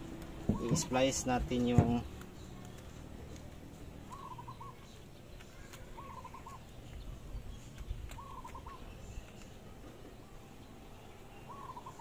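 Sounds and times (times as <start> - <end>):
bird calling: 0.4 - 2.9, 4.0 - 9.6, 11.0 - 12.0.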